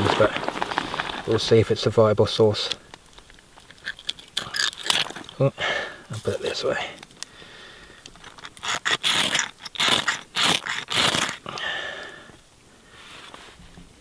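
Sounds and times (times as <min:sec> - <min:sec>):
striker scraping ferro rod: 0:08.2 - 0:11.4.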